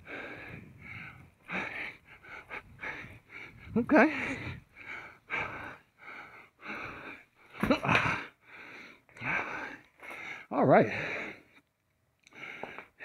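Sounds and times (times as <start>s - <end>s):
man breathing hard: 0.0s - 13.0s
man grunting: 7.6s - 8.3s.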